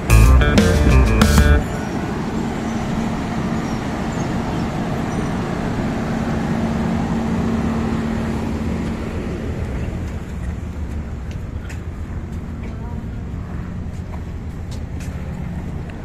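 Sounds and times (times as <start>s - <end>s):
machinery noise rushing: 0.0s - 2.4s
diesel engines humming: 0.0s - 3.0s.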